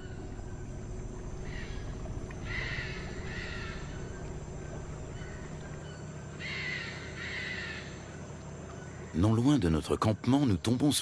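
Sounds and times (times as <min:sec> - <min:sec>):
outdoor background noise: 0:00.0 - 0:11.0
harsh raspy bird calls: 0:01.4 - 0:08.1.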